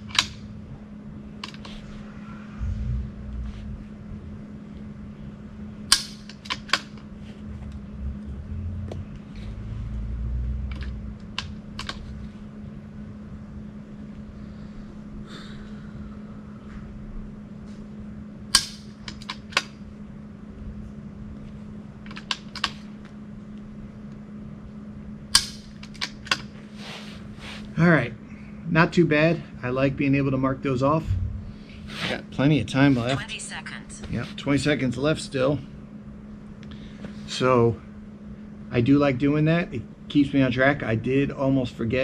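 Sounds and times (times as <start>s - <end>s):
low hum: 0.0s - 26.3s, 30.1s - 36.9s.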